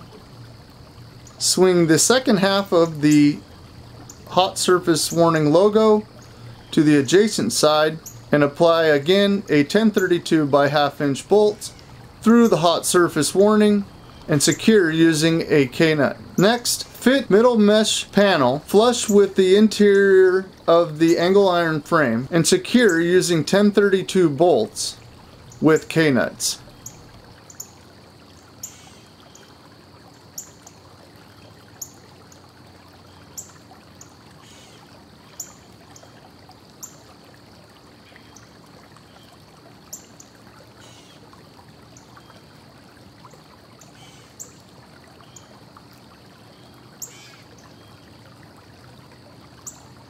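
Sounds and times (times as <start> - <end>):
low steady hum: 0.0 - 31.7.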